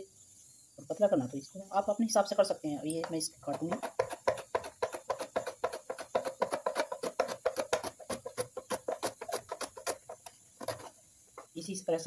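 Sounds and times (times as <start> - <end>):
mandoline slicer scraping cuts: 3.6 - 10.9.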